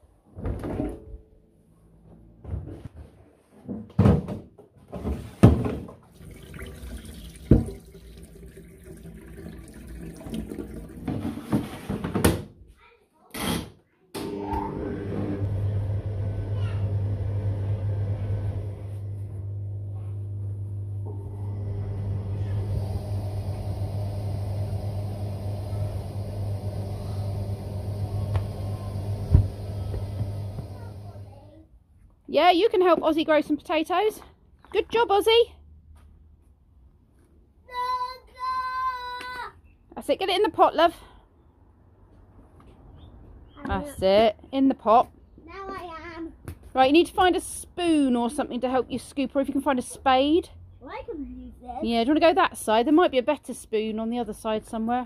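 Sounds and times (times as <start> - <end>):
water pouring into steel sink: 6.1 - 11.3.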